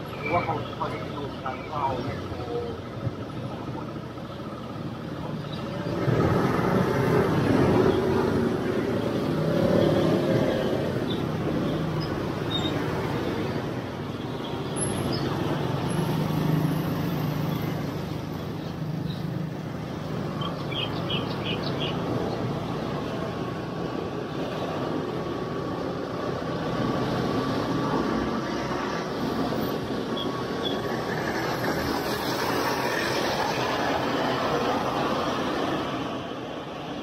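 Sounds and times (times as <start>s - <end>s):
road traffic noise: 0.0s - 37.0s.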